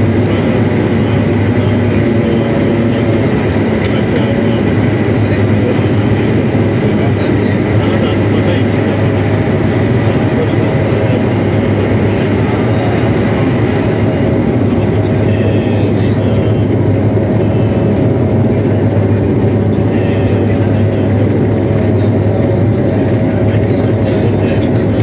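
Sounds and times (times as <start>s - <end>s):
propeller plane cabin drone: 0.0s - 25.0s.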